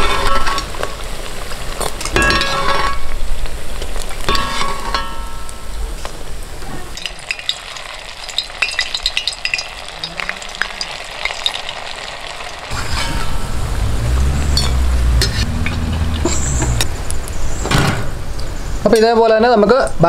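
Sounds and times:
food deep-frying in hot oil: 0:00.0 - 0:17.7
low rumble: 0:12.7 - 0:18.8.

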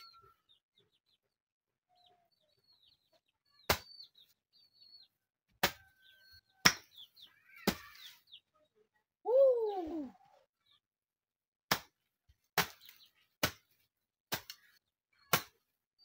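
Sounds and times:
faint bird chirps: 0:00.0 - 0:10.9.

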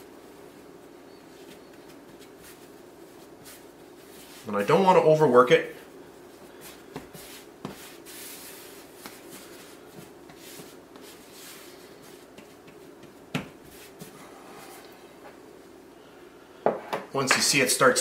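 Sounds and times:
hands patting dough: 0:00.4 - 0:05.2, 0:06.2 - 0:14.3.

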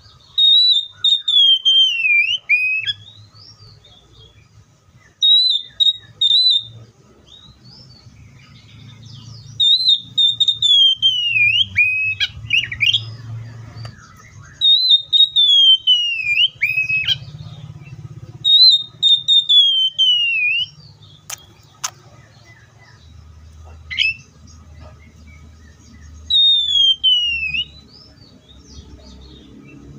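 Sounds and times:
bird singing whistled phrases: 0:00.0 - 0:03.8, 0:05.0 - 0:07.5, 0:09.2 - 0:13.2, 0:13.9 - 0:17.4, 0:18.4 - 0:21.5, 0:23.9 - 0:24.3, 0:25.7 - 0:28.8
sharp clicks: 0:21.2 - 0:22.1.

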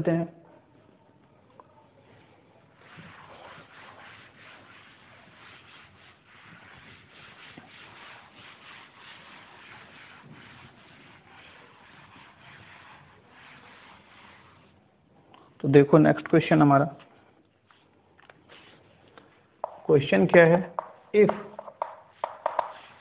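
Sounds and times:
duster wiping chalkboard: 0:02.1 - 0:14.8, 0:19.6 - 0:23.0.

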